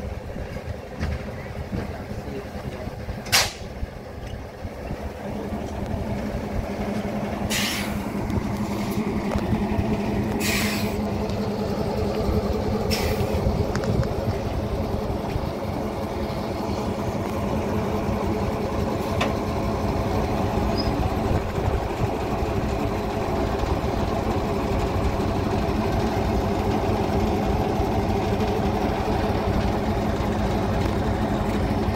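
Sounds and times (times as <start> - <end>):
diesel locomotive engine running: 0.0 - 31.9
air brake hisses: 7.4 - 8.1, 10.4 - 11.0, 12.9 - 13.4.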